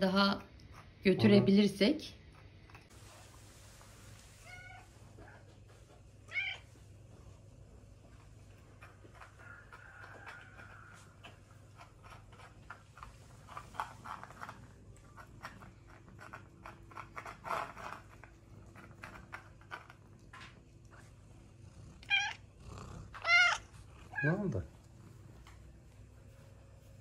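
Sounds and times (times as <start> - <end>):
cat chewing and licking: 2.2 - 4.4, 6.9 - 27.0
cat meowing: 4.4 - 4.9, 6.3 - 6.7, 22.0 - 22.4, 23.2 - 24.4.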